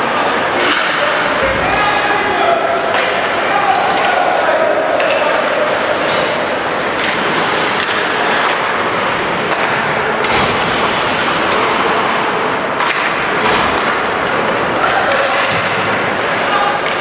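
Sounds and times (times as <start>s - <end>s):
rink and crowd noise: 0.0s - 17.0s
hockey stick and puck knocks: 9.4s - 11.0s, 12.8s - 14.2s.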